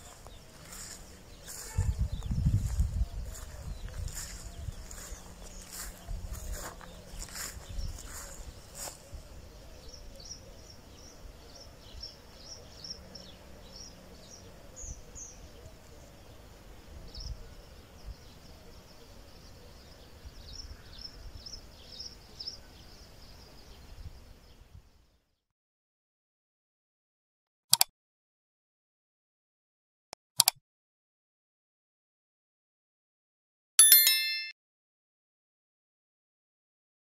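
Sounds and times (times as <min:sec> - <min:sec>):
small birds chirping: 0:00.0 - 0:25.2.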